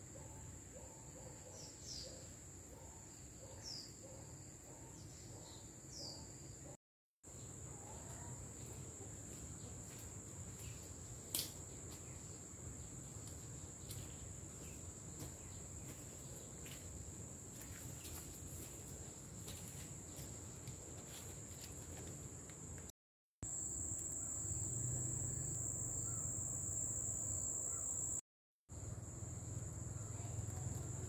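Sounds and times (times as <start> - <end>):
insects buzzing: 23.4 - 28.2.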